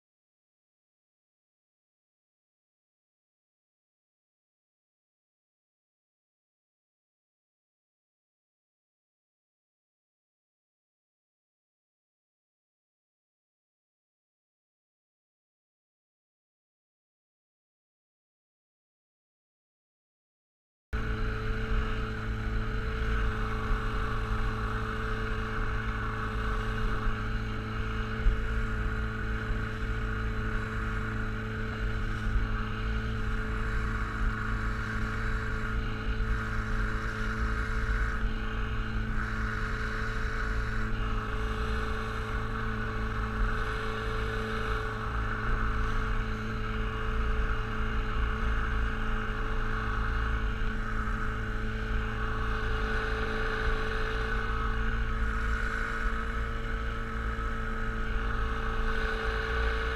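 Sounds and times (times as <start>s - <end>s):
outboard motor running: 21.0s - 59.9s.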